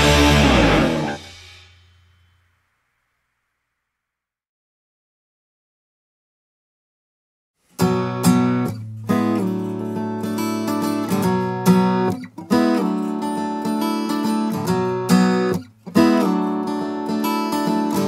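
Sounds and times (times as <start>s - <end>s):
guitar chords strummed: 0.0s - 1.5s, 7.8s - 18.0s.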